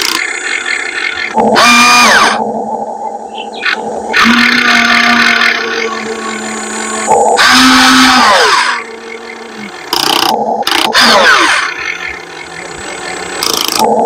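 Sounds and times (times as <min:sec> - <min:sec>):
machine motor whining in bursts: 0:00.0 - 0:02.6, 0:03.7 - 0:14.0.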